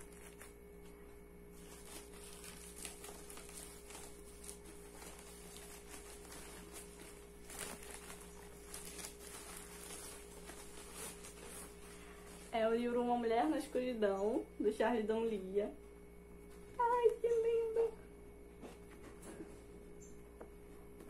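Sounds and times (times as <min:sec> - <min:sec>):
plastic packaging crinkling: 0:00.0 - 0:12.8.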